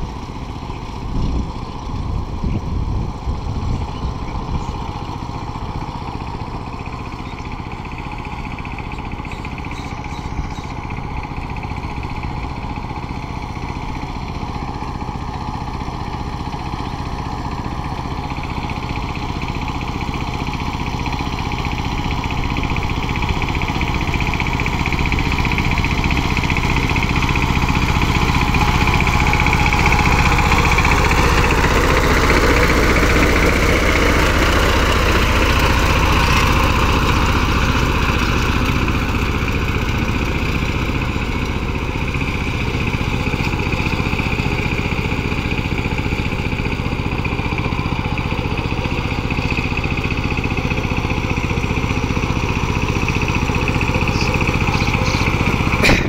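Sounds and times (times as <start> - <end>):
diesel engine running: 0.0 - 56.0
wheels churning muddy water: 11.3 - 56.0.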